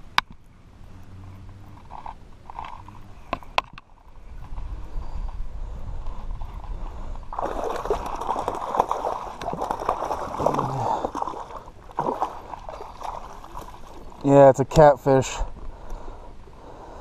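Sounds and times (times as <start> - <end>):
fish thrashing and splashing in water: 7.3 - 14.2.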